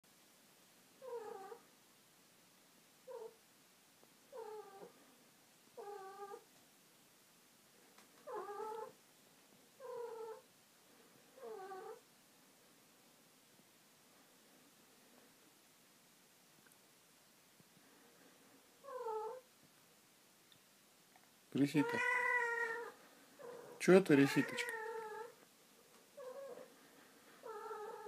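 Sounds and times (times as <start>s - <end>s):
cat yowling: 21.8s - 25.3s.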